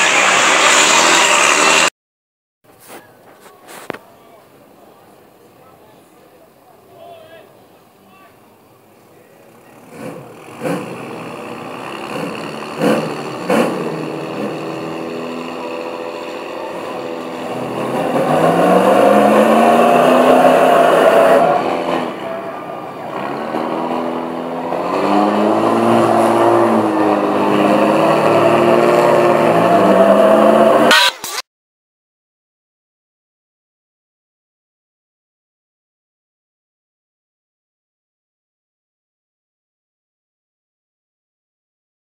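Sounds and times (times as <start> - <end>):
truck engines revving hard: 0.0 - 1.9, 9.5 - 31.4.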